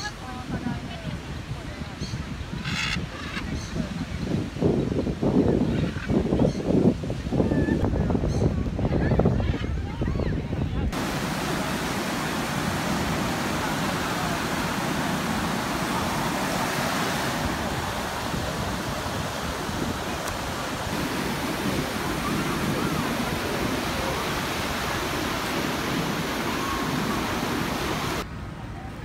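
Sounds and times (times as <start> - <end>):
ocean waves breaking on beach: 10.8 - 28.7.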